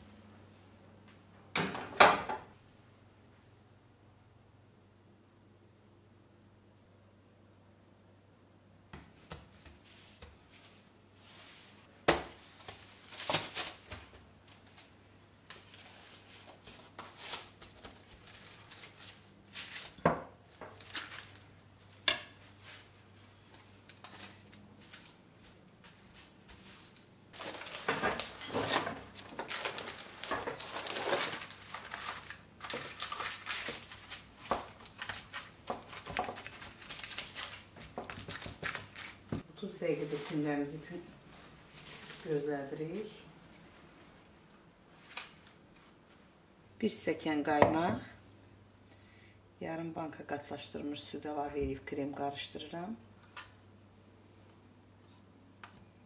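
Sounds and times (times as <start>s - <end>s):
baking paper rustling and crinkling: 9.5s - 46.2s.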